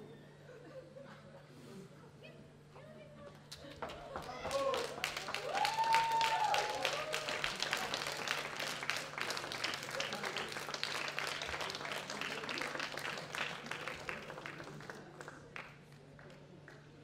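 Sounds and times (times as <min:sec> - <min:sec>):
audience applauding: 0:03.8 - 0:15.8.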